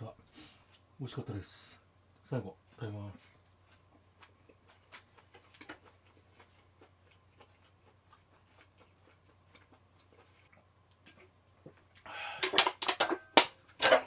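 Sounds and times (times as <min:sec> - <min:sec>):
chewing clicks: 0:03.4 - 0:11.3.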